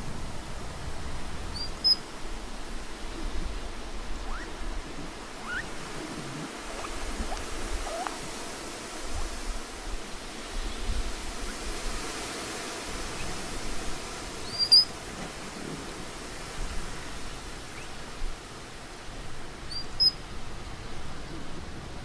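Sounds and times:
outdoor hiss: 0.0 - 22.0
animal squeaks: 1.6 - 2.0, 4.2 - 4.5, 5.4 - 5.7, 6.7 - 8.2, 14.5 - 14.9.

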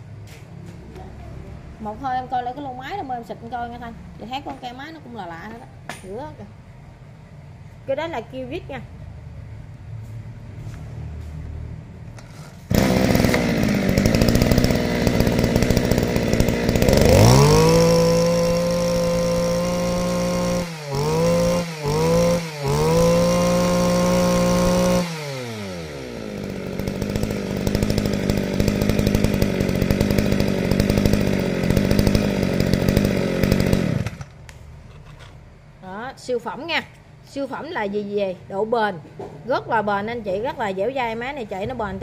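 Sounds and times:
brush cutter engine revving and idling: 12.7 - 34.5.

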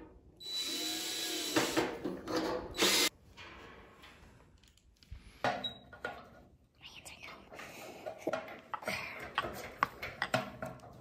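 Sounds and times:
cordless drill driving screw: 0.4 - 1.9, 2.8 - 3.1.

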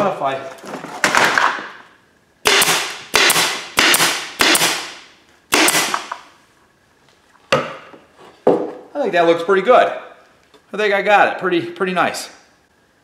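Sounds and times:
air stapler shots: 2.4 - 6.3.

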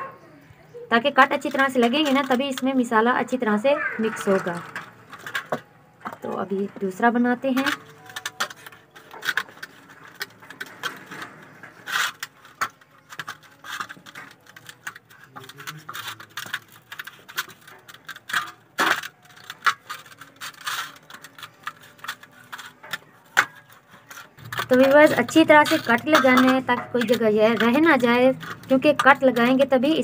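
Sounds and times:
knife scraping on metal platter: 3.9 - 30.0.

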